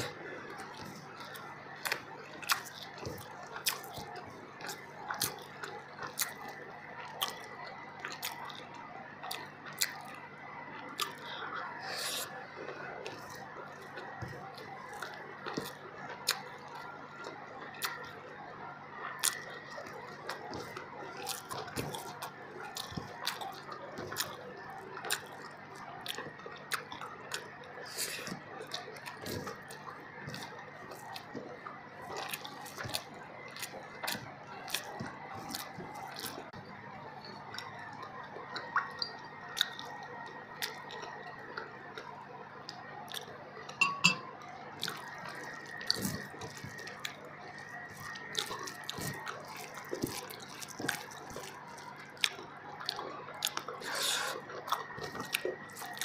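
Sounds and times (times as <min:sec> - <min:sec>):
faint steady hum: 0:00.0 - 0:56.0
person chewing with wet clicks: 0:00.0 - 0:56.0.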